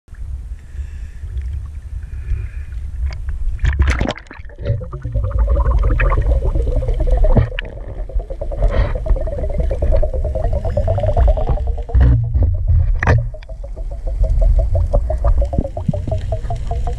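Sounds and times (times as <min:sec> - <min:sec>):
water sloshing against camera: 0:02.8 - 0:16.9
splashing rush of bubbles: 0:03.6 - 0:16.9.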